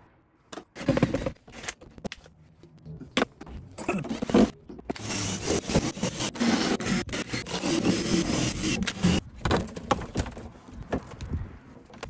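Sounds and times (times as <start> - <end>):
knocks and scrapes: 0.6 - 2.2.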